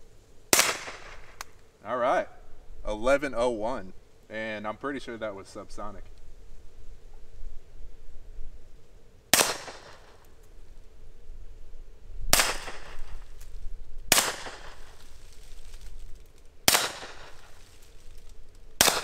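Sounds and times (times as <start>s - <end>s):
pistol shots: 0.5s - 1.3s, 9.3s - 10.1s, 12.3s - 13.1s, 14.1s - 14.9s, 16.7s - 17.5s, 18.8s - 19.0s.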